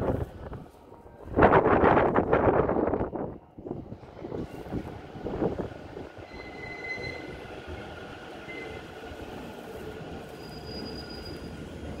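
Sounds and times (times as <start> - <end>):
train wheels rumbling on rails: 0.0 - 12.0
faint high-pitched squealing: 10.3 - 11.6.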